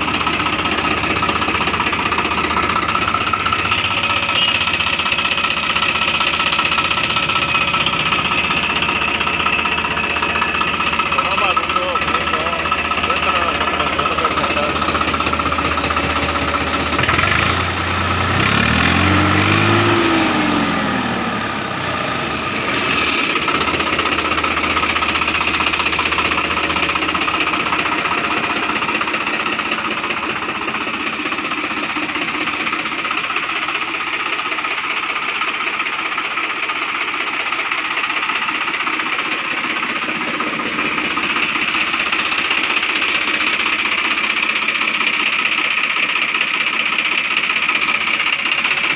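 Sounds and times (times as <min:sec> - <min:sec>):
tractor diesel engine running: 0:00.0 - 0:48.9.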